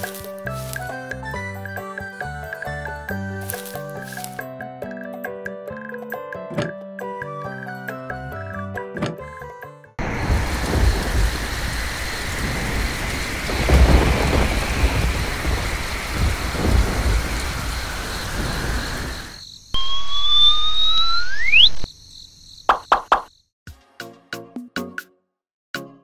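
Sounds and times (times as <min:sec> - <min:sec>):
heavy rain: 0:10.0 - 0:19.4
low rolls of thunder: 0:10.0 - 0:19.4
steady hiss: 0:10.0 - 0:19.4
rising whistle tones: 0:18.4 - 0:21.9.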